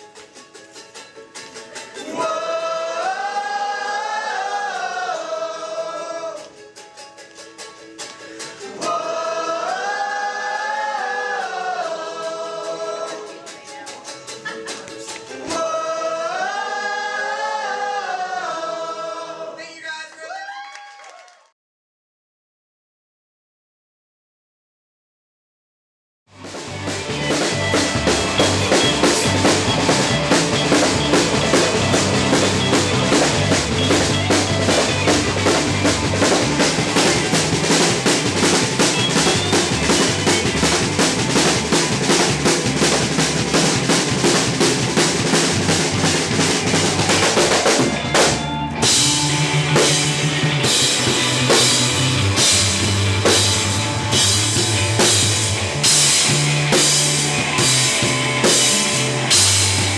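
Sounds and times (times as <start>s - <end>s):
drum kit with cymbals and snare: 26.3s - 59.9s
rock band playing: 26.3s - 59.9s
heavy bass drum hits: 26.4s - 59.9s.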